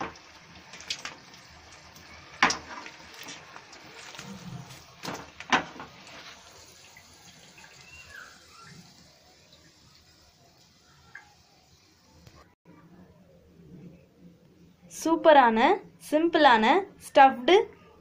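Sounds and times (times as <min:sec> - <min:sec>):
hot oil sizzling: 0:00.0 - 0:12.4.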